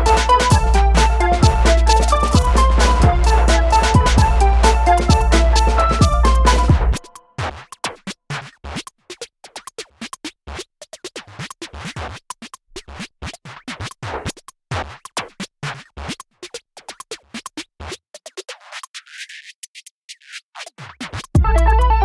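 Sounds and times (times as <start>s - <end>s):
low beats: 0.0s - 7.2s
choppy electronic music: 0.0s - 7.3s, 21.4s - 22.0s.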